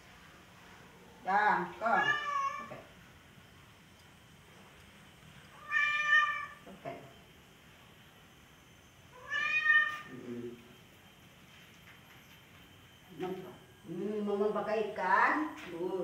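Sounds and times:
cat meowing: 2.0 - 2.8, 5.6 - 6.6, 9.2 - 10.1.

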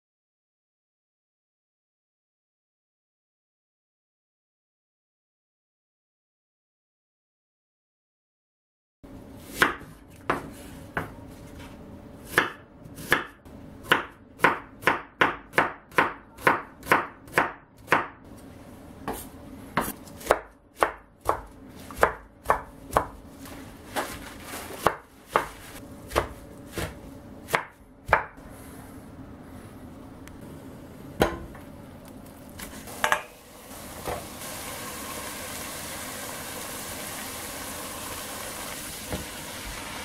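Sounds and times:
knife chopping on wooden board: 9.5 - 11.1, 12.2 - 18.2, 19.0 - 23.2, 24.8 - 28.4.

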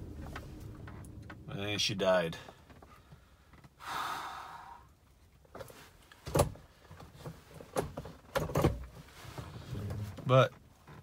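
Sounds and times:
clicks and knocks in a car: 5.5 - 11.0.

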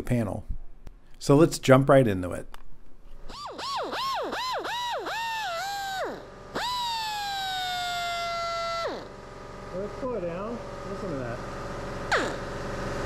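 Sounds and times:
die grinder whining: 3.3 - 9.9.

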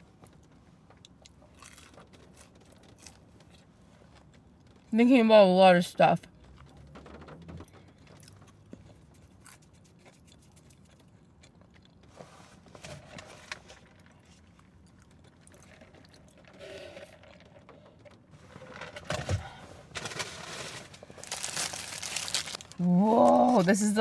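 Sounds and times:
chewing with mouth clicks: 8.0 - 12.2, 13.8 - 18.2
paper bag rustling: 19.9 - 24.0.

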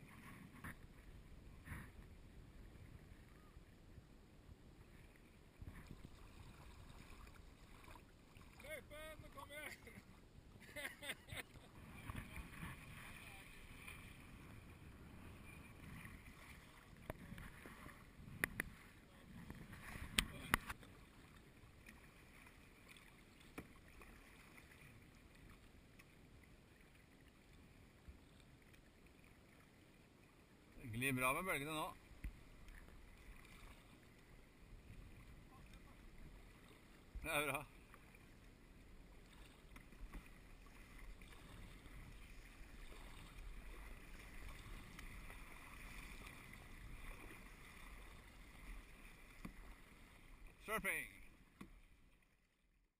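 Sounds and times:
water sloshing against a kayak: 0.0 - 52.9.

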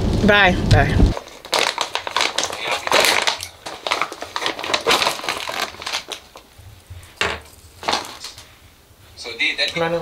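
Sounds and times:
crunching and crinkling: 1.0 - 8.5.

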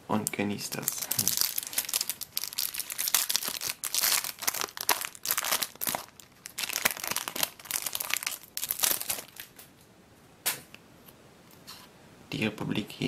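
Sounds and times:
foil wrapper crinkling: 0.7 - 9.6.

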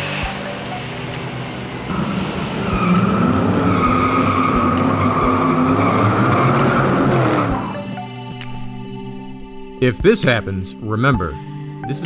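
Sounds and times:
car tires squealing: 0.0 - 8.0
engine revving: 0.0 - 8.6.

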